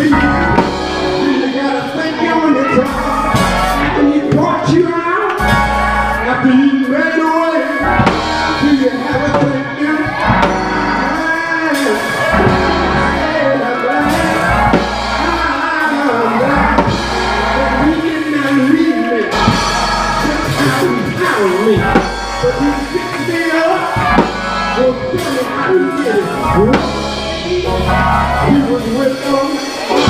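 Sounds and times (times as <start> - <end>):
drum kit with cymbals: 0.0 - 2.0, 2.8 - 3.9, 7.8 - 9.5, 10.1 - 25.5, 26.7 - 30.0
bass notes: 0.0 - 4.8, 5.4 - 6.5, 7.8 - 11.4, 12.1 - 30.0
keyboard: 0.0 - 30.0
voices singing: 7.7 - 30.0.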